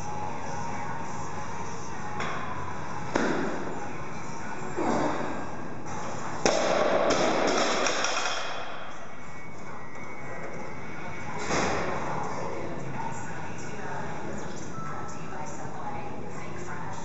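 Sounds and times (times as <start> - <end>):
plates rattling and bouncing: 7.1 - 8.6.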